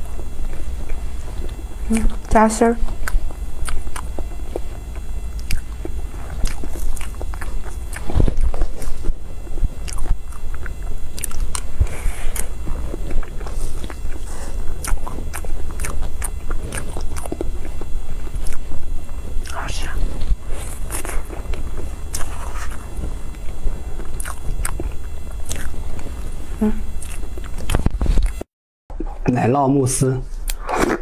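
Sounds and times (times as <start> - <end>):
person chewing cake: 0.0 - 28.4
wet mouth clicks and smacks: 5.4 - 5.7.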